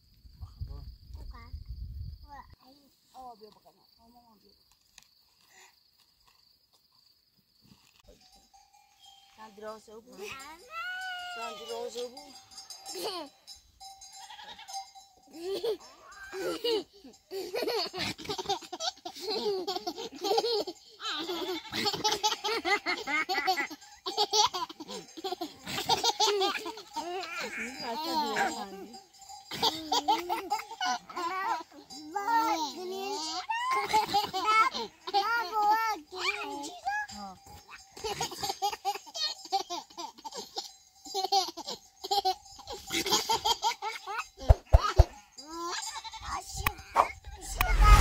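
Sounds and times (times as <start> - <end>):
babies laughing: 12.9 - 13.4, 15.4 - 36.9, 37.7 - 48.0
baby giggling: 15.4 - 28.6, 29.5 - 31.4, 38.0 - 45.1.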